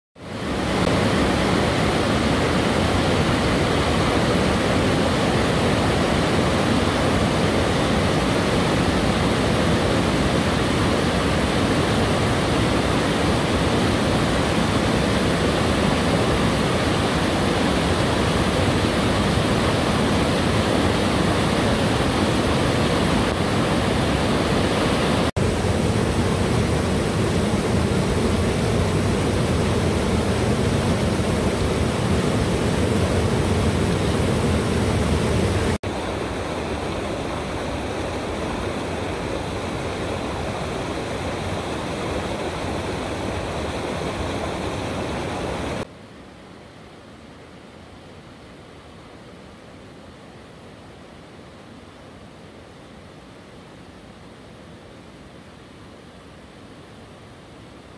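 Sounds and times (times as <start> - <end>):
river rapids rushing: 0.2 - 45.9.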